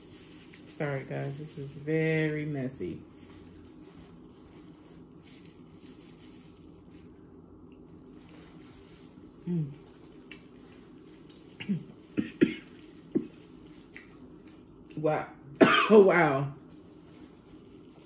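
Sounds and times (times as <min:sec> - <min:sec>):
sharp coughs: 0:11.6 - 0:12.7, 0:15.6 - 0:16.0.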